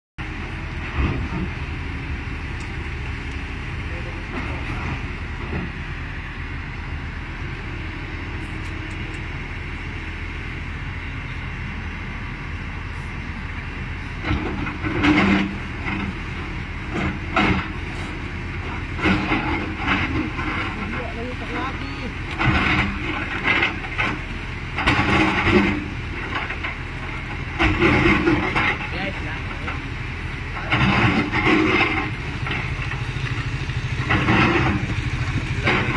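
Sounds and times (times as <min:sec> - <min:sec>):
excavator diesel engine running: 0:00.2 - 0:35.9
mechanical clatter and scraping: 0:14.2 - 0:29.9, 0:30.5 - 0:35.9.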